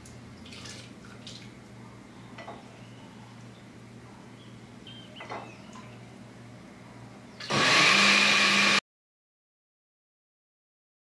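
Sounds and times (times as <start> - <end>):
kitchen blender whining: 7.4 - 8.8.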